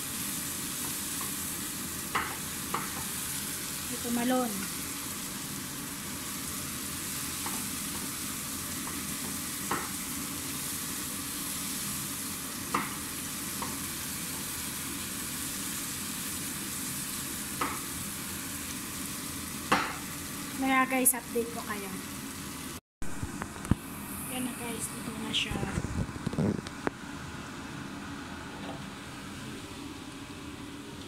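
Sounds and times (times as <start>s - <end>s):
food sizzling in a frying pan: 0.0s - 31.0s
wooden spatula knocking on pan: 2.1s - 3.1s, 8.8s - 10.0s, 19.7s - 20.0s.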